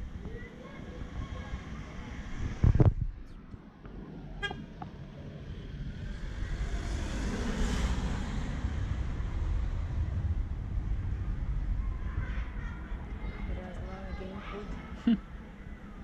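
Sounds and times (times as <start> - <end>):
vehicle passing: 4.0 - 16.0.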